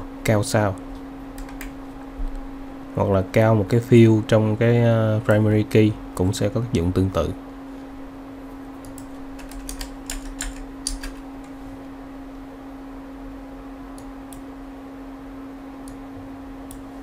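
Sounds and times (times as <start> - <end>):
steady low hum: 0.0 - 17.0
typing on computer keyboard: 1.4 - 1.7, 8.8 - 11.2.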